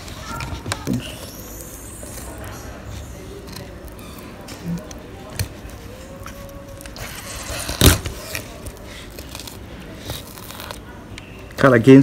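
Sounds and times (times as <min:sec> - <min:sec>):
blade scraping bone: 0:01.3 - 0:04.6.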